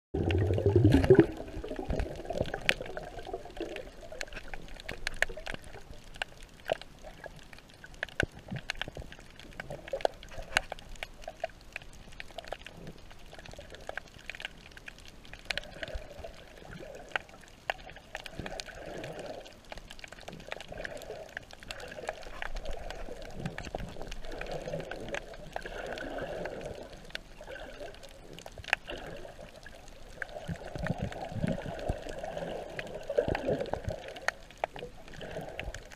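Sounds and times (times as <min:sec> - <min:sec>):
muffled water sloshing: 0:00.2 - 0:11.7
sharp underwater clicks and crackles: 0:00.2 - 0:35.9.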